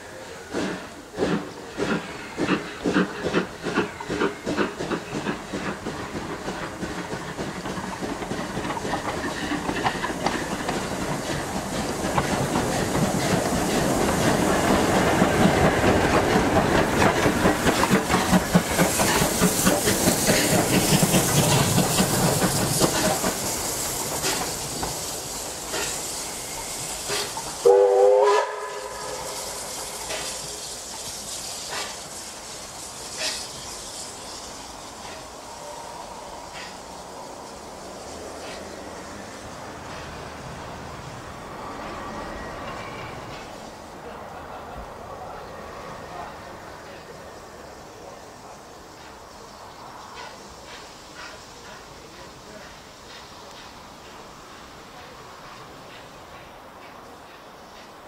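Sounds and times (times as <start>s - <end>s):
train wheels clicking on rail joints: 0.4s - 44.7s, 46.1s - 58.0s
steam locomotive whistle: 27.1s - 30.3s.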